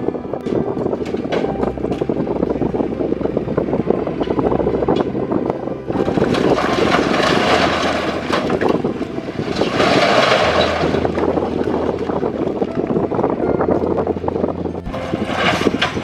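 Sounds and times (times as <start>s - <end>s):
truck engine running: 0.0s - 16.0s
stones clattering from truck bed: 6.0s - 12.4s, 14.9s - 16.0s.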